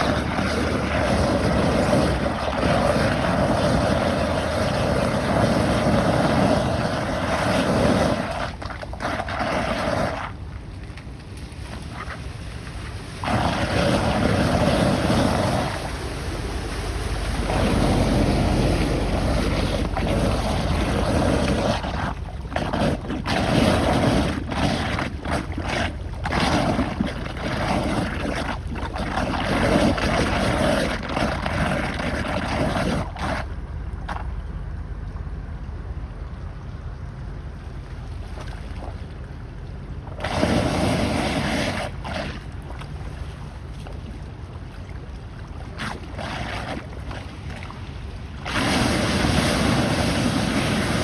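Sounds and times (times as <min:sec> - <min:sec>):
water gushing down drain: 0:00.0 - 0:10.4, 0:13.2 - 0:33.5, 0:40.1 - 0:42.8, 0:45.7 - 0:51.0.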